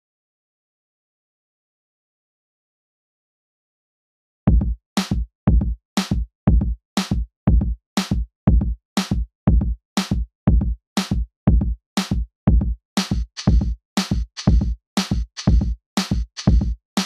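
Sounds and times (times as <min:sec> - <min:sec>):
electronic drum-machine beat: 0:12.5 - 0:17.0.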